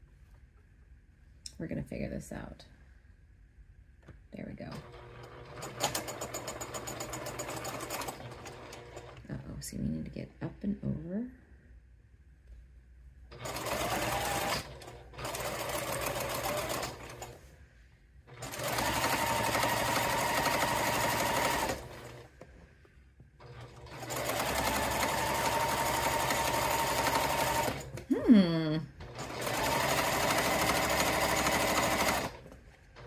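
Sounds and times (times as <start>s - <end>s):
sewing needle rapid clatter: 5.0s - 9.2s, 13.4s - 17.3s, 18.4s - 22.2s, 23.4s - 28.0s, 29.1s - 32.6s
sewing machine motor whine: 13.4s - 17.2s, 18.4s - 22.2s, 23.6s - 28.0s, 29.0s - 32.4s.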